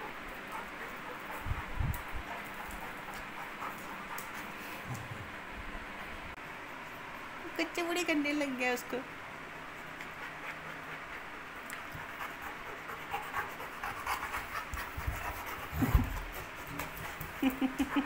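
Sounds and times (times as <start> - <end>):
dogs panting: 0.0 - 5.1, 9.6 - 18.0.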